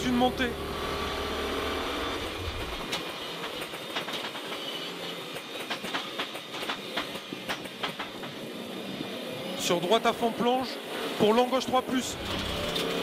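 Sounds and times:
car engine drone: 0.0s - 13.0s
sharp clicks and cracks: 5.4s - 8.4s.

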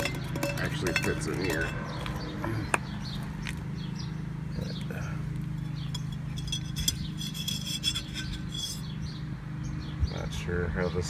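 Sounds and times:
metal clinks: 0.0s - 2.0s, 5.6s - 9.0s
steady low hum: 0.0s - 10.1s.

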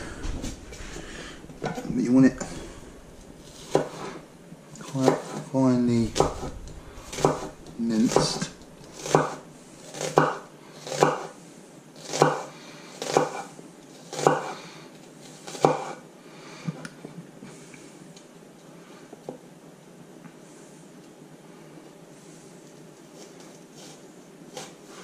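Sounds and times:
knife chopping on wooden board: 3.6s - 4.1s, 6.1s - 6.5s, 7.1s - 11.3s, 12.0s - 13.5s, 14.1s - 14.5s, 15.5s - 16.0s.

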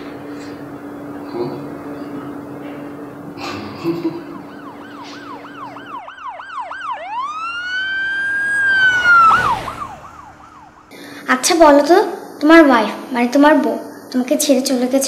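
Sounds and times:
emergency siren yelp and wail: 0.0s - 11.0s.

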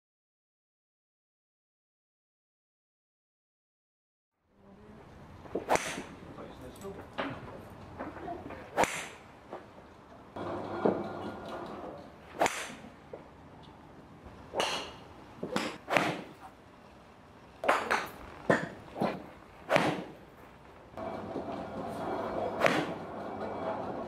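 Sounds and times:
golf clubs striking balls: 5.4s - 9.7s, 10.4s - 13.8s, 14.5s - 16.6s, 17.6s - 20.4s, 21.0s - 24.0s.

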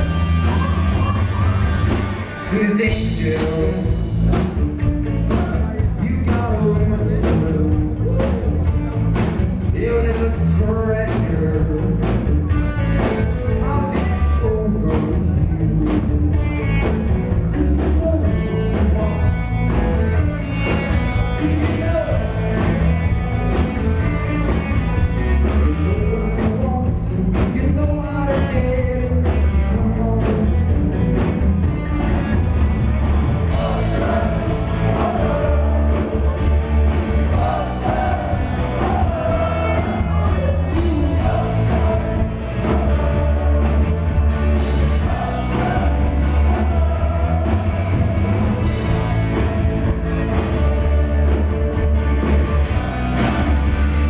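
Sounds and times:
rock band playing live: 0.0s - 54.0s
man singing: 2.4s - 4.1s, 5.3s - 8.7s, 9.6s - 12.3s, 13.5s - 16.4s, 17.3s - 22.7s, 25.4s - 30.8s, 33.5s - 36.5s, 37.3s - 49.6s
drum beat: 33.5s - 51.0s.

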